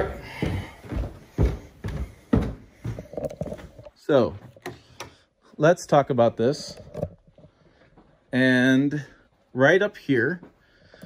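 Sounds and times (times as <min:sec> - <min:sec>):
footsteps down indoor stairs: 0:00.0 - 0:04.9, 0:07.5 - 0:08.3, 0:10.3 - 0:11.0.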